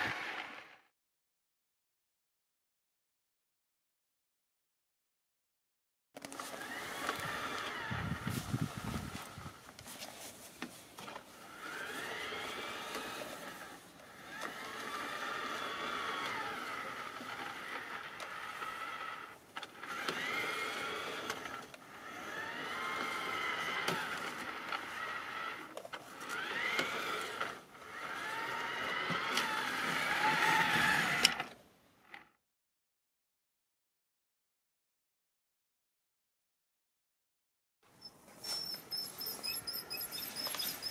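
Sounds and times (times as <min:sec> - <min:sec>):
model train motor whining: 0:00.0 - 0:00.9, 0:06.2 - 0:09.6, 0:11.0 - 0:32.4, 0:38.0 - 0:40.9.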